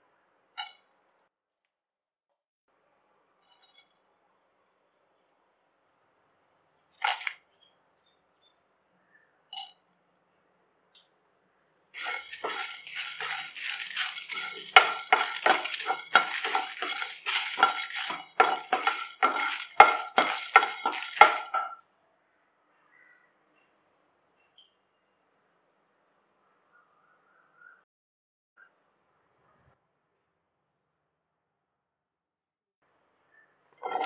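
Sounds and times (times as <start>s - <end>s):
seeds rattling in pan: 7.0s - 7.3s, 12.0s - 21.8s
utensil scraping pan: 12.0s - 21.8s.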